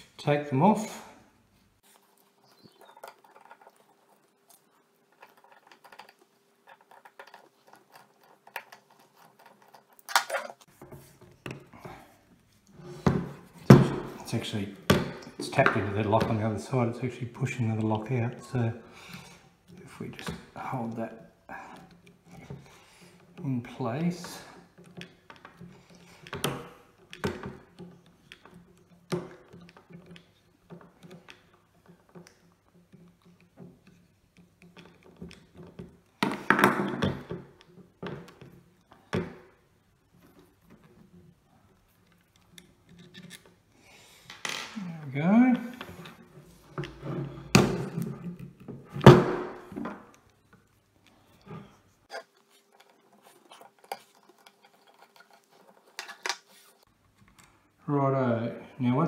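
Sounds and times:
small clicks and rustles: 1.7 - 12.8, 37.1 - 44.5, 49.7 - 57.8.

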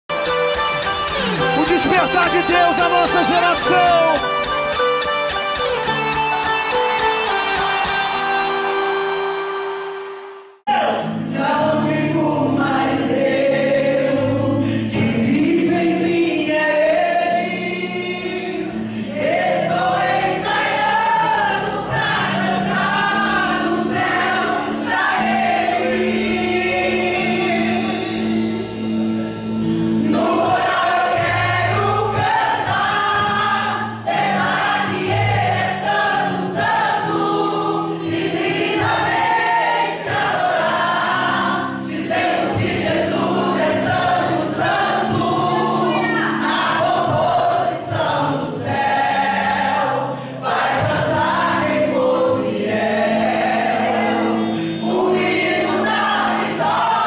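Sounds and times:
instrumental backing with bass: 0.1 - 16.2, 17.0 - 57.0
gospel group singing: 0.2 - 57.0
woman singing lead: 1.2 - 4.8, 29.9 - 57.0.

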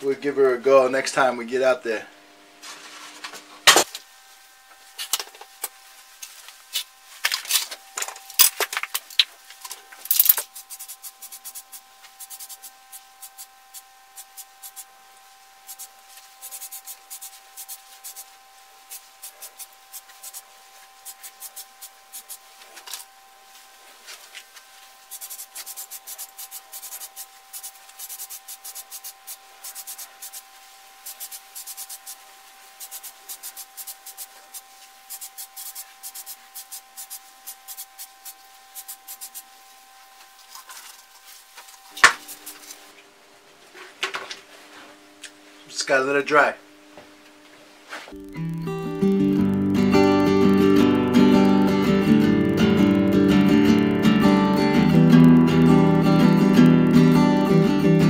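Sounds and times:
aerosol spray bursts: 10.6 - 14.9, 15.7 - 18.3, 18.9 - 22.5, 25.1 - 39.5.

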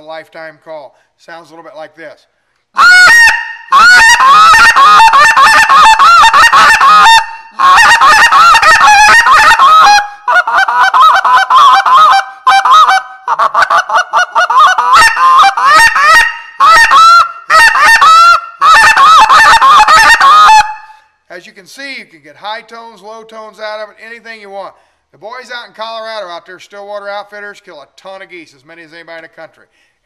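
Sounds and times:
goose call honks and clucks: 2.8 - 20.9.

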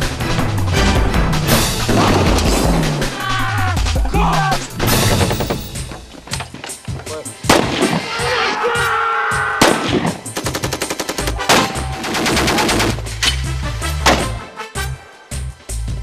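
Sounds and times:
heavy single gunshots: 7.4 - 8.0.

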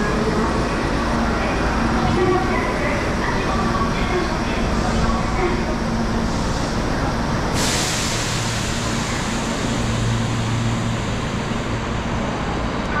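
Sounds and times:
subway train low hum: 0.0 - 13.0
train hiss: 4.8 - 11.8.

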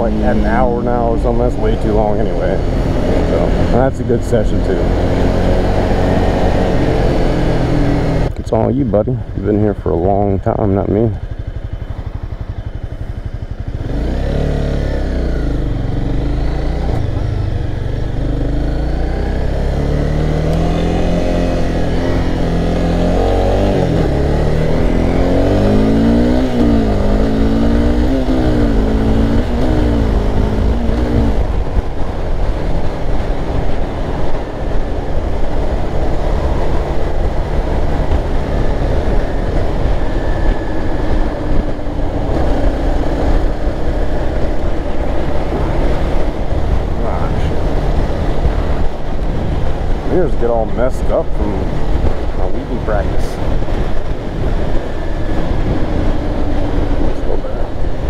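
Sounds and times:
motorcycle engine accelerating: 0.0 - 58.0
wind noise: 15.2 - 58.0.

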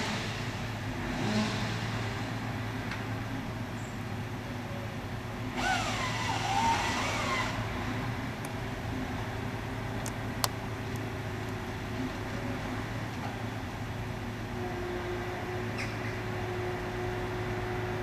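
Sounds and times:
truck engine running: 0.0 - 18.0
hydraulic saw whine: 5.5 - 8.0.

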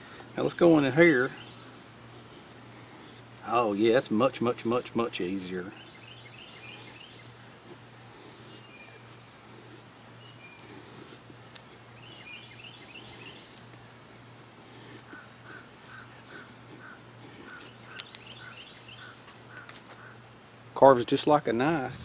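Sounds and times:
machete scraping wood: 6.1 - 7.3
high bird chirps: 16.8 - 19.2.

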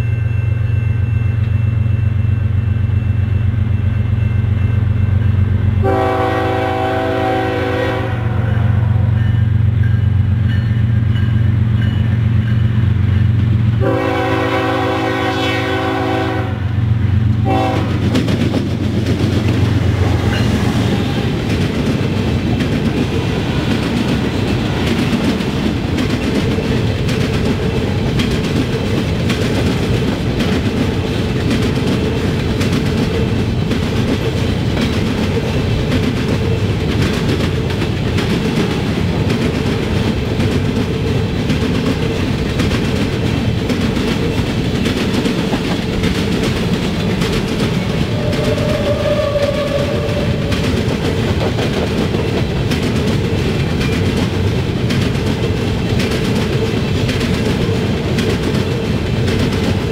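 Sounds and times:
freight train rumbling past: 0.0 - 59.9
locomotive engine hum: 0.0 - 59.9
train horn blast: 5.8 - 9.2, 13.8 - 18.1, 48.0 - 50.7
wheels clacking over track: 18.0 - 59.9.

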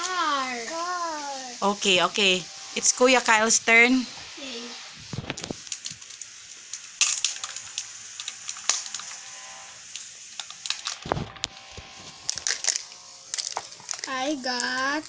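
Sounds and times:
foil and paper crinkling: 5.2 - 9.2, 10.0 - 15.0.

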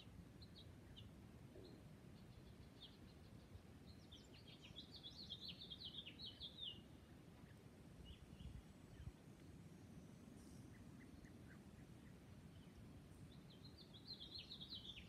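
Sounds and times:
songbird chirping: 0.0 - 15.0
low wind rumble: 6.9 - 14.9.

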